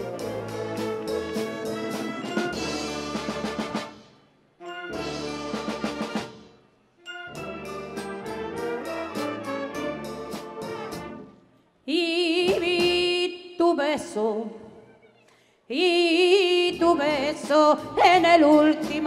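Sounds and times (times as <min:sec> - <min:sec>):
wind band playing: 0:00.0 - 0:11.4
woman singing with vibrato: 0:11.9 - 0:14.7, 0:15.7 - 0:19.0.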